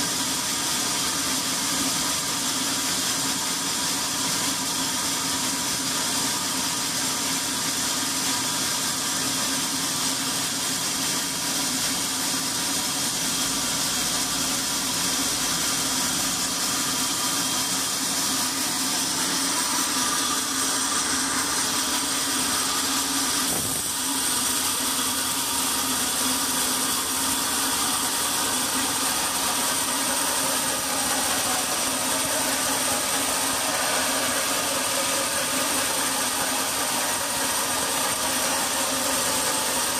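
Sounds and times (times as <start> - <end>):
motor hum: 15.2 - 39.9
saw blade hissing through timber: 15.6 - 39.9.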